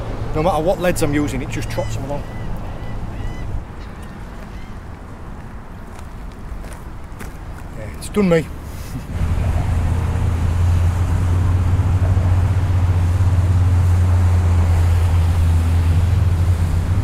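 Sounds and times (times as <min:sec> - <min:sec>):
jet ski engine drone: 0:00.0 - 0:03.8, 0:09.1 - 0:17.0.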